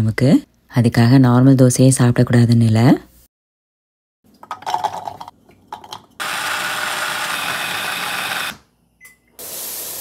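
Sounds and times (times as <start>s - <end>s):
food chopper motor running: 6.2s - 8.6s.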